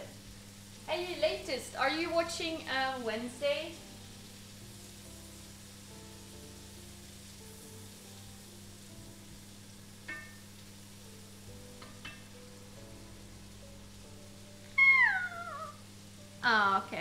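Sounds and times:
onions sizzling in butter: 0:00.0 - 0:17.0
loud falling cry: 0:14.8 - 0:15.8.

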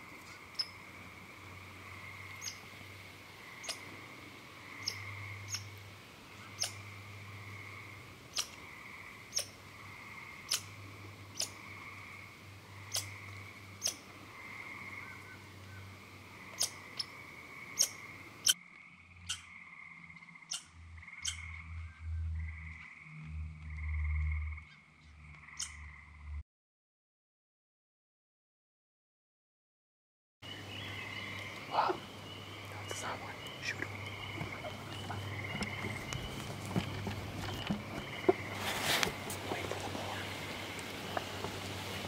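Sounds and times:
frogs calling in chorus: 0:00.0 - 0:05.8, 0:06.4 - 0:21.8, 0:22.4 - 0:26.2, 0:30.6 - 0:41.3
low rumbles: 0:30.5 - 0:42.0.

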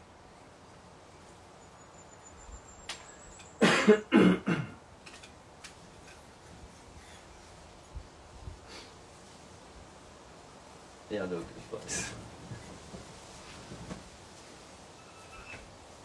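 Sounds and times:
man coughing: 0:03.6 - 0:04.8.

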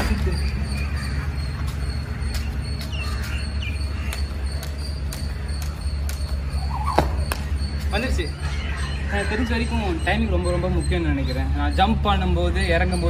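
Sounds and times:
skipping rope slapping concrete: 0:04.0 - 0:07.5.

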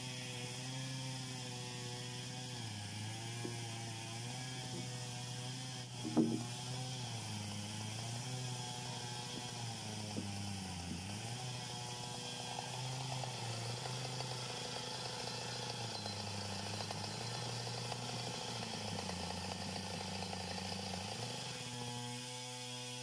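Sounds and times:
chainsaw idling: 0:00.3 - 0:23.0.

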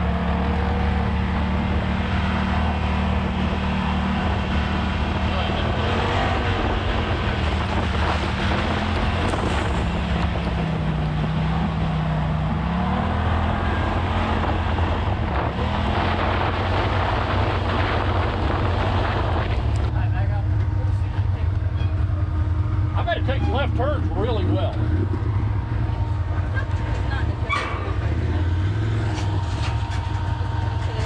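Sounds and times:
utility vehicle engine running: 0:00.0 - 0:31.0
wind noise on microphone: 0:06.2 - 0:11.8, 0:13.8 - 0:20.0.

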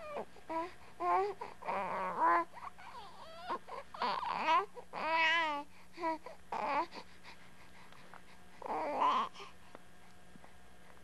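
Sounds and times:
baby cooing and babbling: 0:00.0 - 0:07.0, 0:08.6 - 0:09.5.

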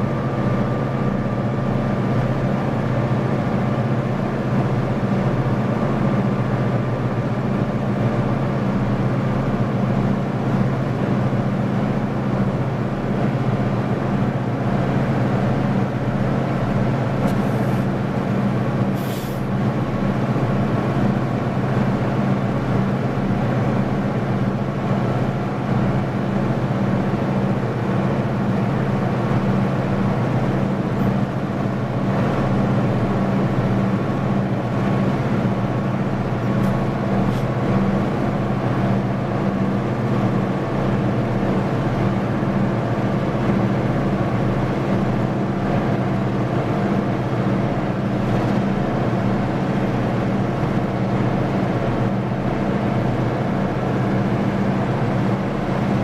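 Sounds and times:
diesel locomotives engine drone: 0:00.0 - 0:56.0
brief high hiss: 0:19.0 - 0:19.4.

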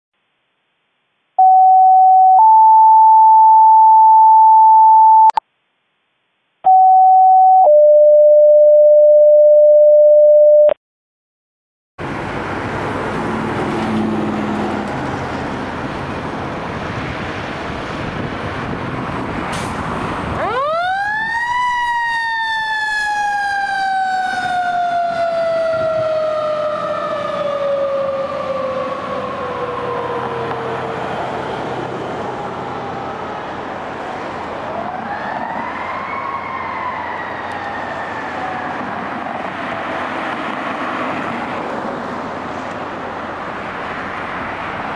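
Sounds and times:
two-tone alerting tones: 0:01.4 - 0:05.4, 0:06.7 - 0:10.8
road noise: 0:12.0 - 0:44.9.

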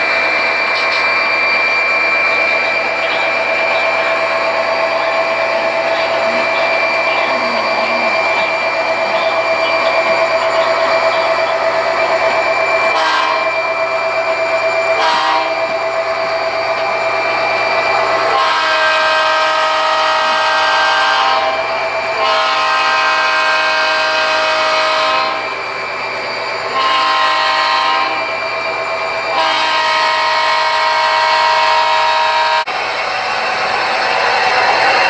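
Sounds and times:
model train horn blasts: 0:12.9 - 0:13.6, 0:14.9 - 0:15.7, 0:18.3 - 0:21.6, 0:22.2 - 0:25.5, 0:26.7 - 0:28.3, 0:29.3 - 0:32.7.

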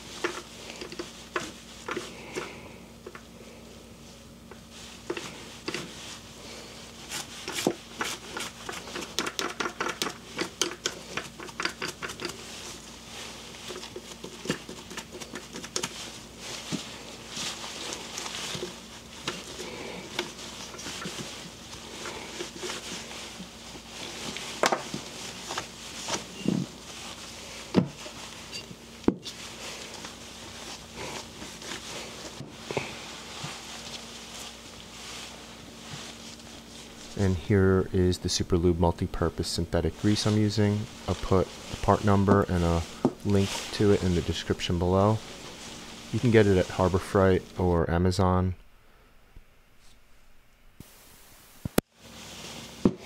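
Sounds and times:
cloth wiping parts: 0:00.0 - 0:47.8
toothbrush scrubbing gears: 0:07.1 - 0:12.4.

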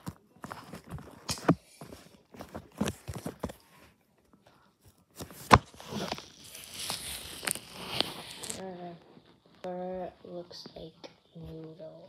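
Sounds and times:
phone rustling against fur: 0:00.0 - 0:04.0, 0:04.8 - 0:08.6.

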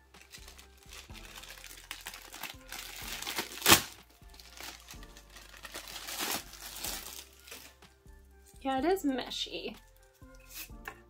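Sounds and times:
plastic bag crinkling: 0:00.2 - 0:07.8.

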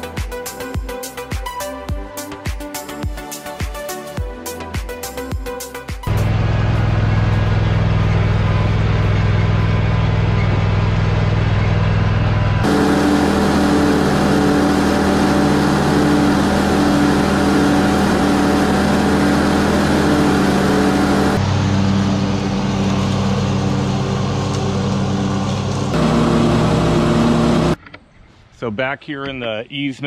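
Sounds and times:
riding mower engine mowing: 0:06.1 - 0:27.8.

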